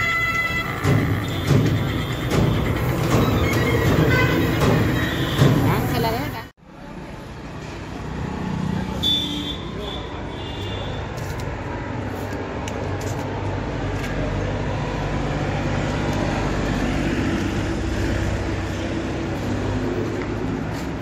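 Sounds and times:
vehicle rumble and hum: 0:10.4 - 0:21.0.

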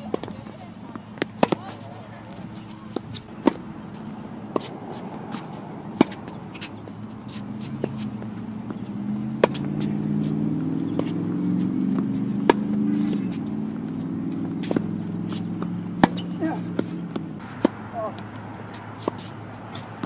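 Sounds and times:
low engine hum: 0:00.0 - 0:20.0
tennis ball pops: 0:09.3 - 0:09.9, 0:11.9 - 0:13.2, 0:15.6 - 0:17.8.

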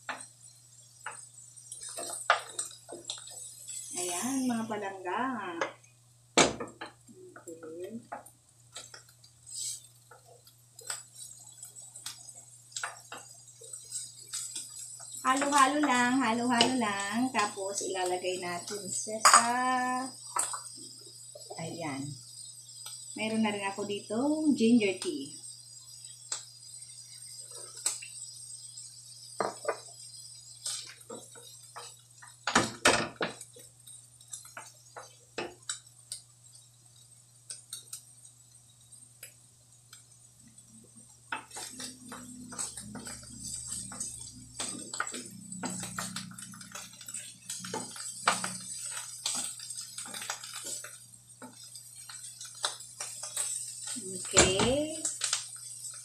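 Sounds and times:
wooden spatula knocking frying pan: 0:06.4 - 0:07.0
spatula scraping frying pan: 0:09.4 - 0:11.6.

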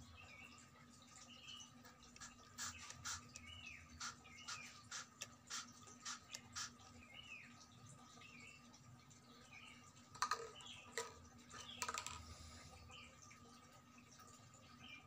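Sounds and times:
small bird chirping: 0:01.2 - 0:08.7
spray bottle hissing puffs: 0:02.2 - 0:06.8.

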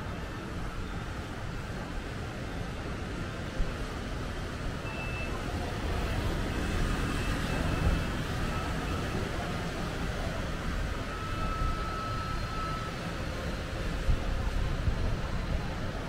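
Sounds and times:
faint distant voices: 0:00.0 - 0:16.0
road traffic rumble: 0:00.0 - 0:16.0.

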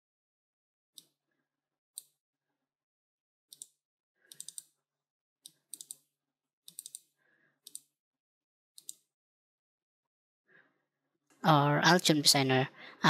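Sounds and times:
computer mouse clicks: 0:03.5 - 0:04.7, 0:05.5 - 0:06.1, 0:06.7 - 0:07.9, 0:08.8 - 0:09.1.

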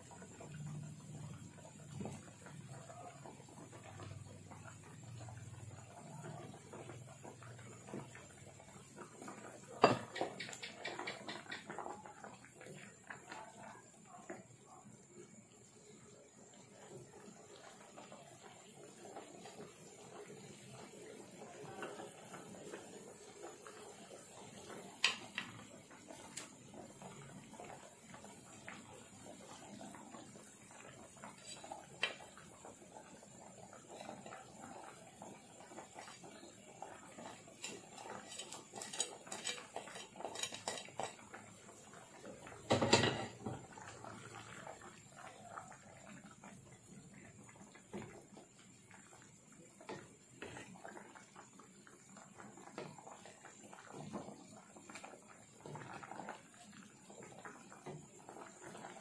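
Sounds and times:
spatula scraping frying pan: 0:37.6 - 0:41.1.

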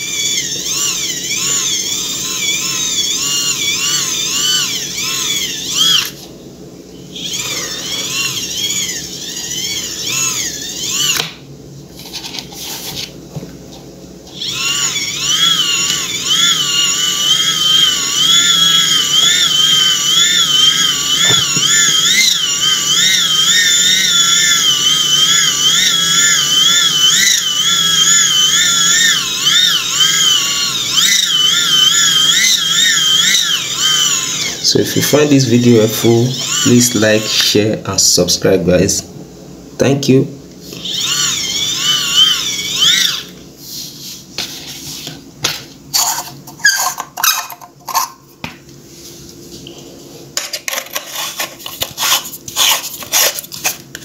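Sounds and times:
high motor whine: 0:00.0 - 0:11.5, 0:14.3 - 0:38.2, 0:40.7 - 0:43.5.

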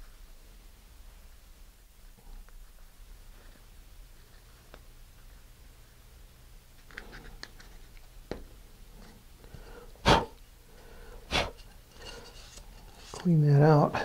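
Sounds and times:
puffs of breath: 0:09.5 - 0:12.4.

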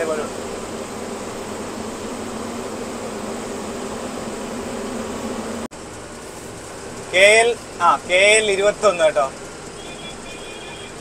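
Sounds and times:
lorry engine drone in cab: 0:00.0 - 0:11.0.

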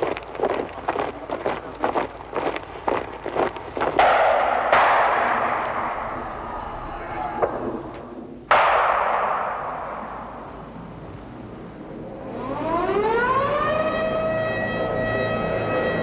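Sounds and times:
heavy explosions: 0:03.6 - 0:12.2
gunfire cracks: 0:03.8 - 0:06.5, 0:08.5 - 0:10.6.

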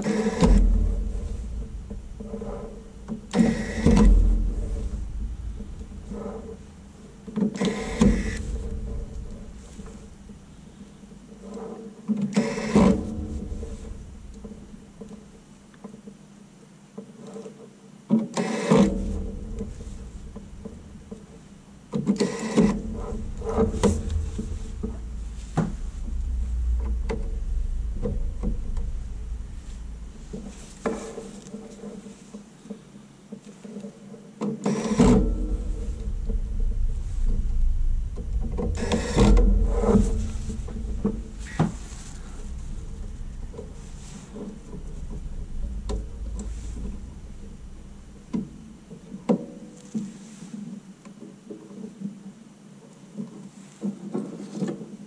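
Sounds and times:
low rumble: 0:00.0 - 0:11.6, 0:12.6 - 0:15.8, 0:18.8 - 0:31.8, 0:35.0 - 0:49.9.

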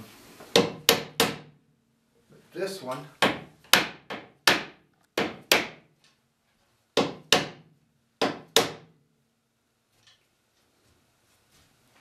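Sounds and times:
hammer striking wood: 0:00.5 - 0:01.6, 0:03.2 - 0:05.9, 0:07.0 - 0:09.0.

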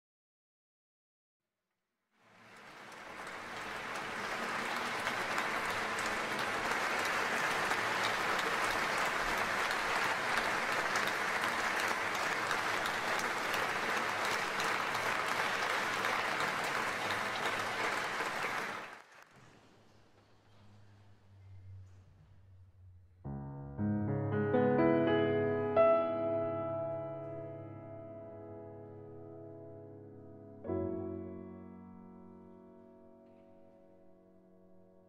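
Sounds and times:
audience applauding: 0:02.2 - 0:19.6.

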